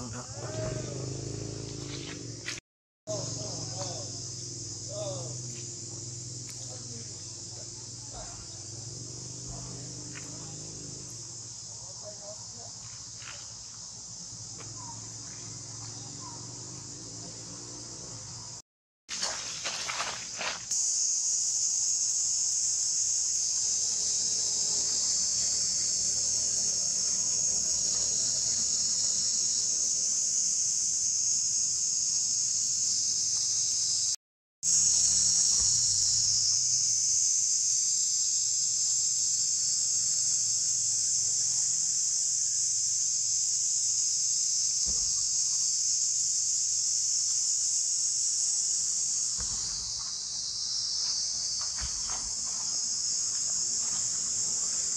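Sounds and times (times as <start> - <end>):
forest insects buzzing: 0.0 - 54.9.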